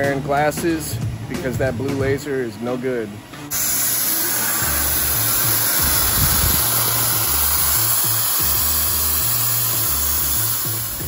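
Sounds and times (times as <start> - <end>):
steady hiss: 2.3 - 11.0
music with stepping bass line: 4.6 - 11.0.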